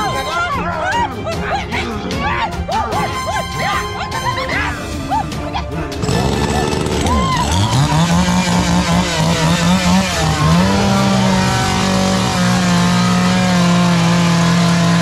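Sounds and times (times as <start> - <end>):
chainsaw engine revving: 5.9 - 15.0.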